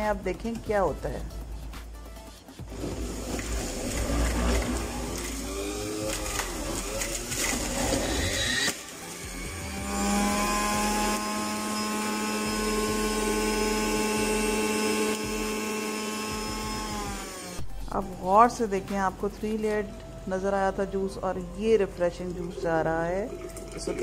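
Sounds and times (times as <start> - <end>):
juicer grinding carrots: 2.6 - 17.7, 23.2 - 24.0
juicer motor humming: 2.6 - 17.8, 21.4 - 24.0.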